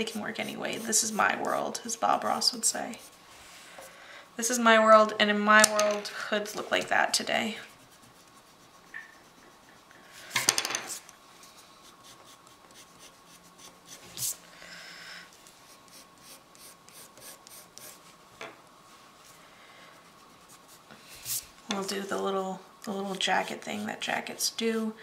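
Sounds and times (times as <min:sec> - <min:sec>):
pencil sketching on paper: 0:00.0 - 0:03.2, 0:07.1 - 0:10.2, 0:11.8 - 0:14.4, 0:15.7 - 0:18.0, 0:19.9 - 0:21.4, 0:23.1 - 0:24.4.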